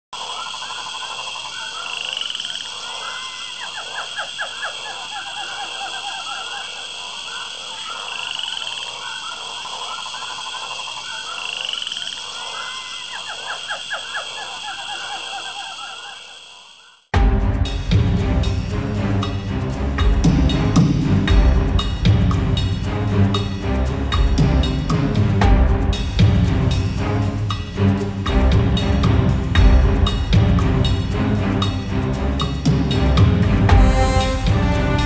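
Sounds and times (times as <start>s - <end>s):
frogs croaking and trilling: 0.1s - 17.1s.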